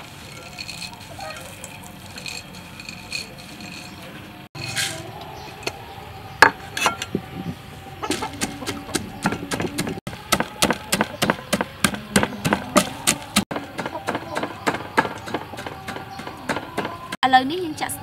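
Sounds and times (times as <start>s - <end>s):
wooden pestle pounding in mortar: 8.1s - 17.1s.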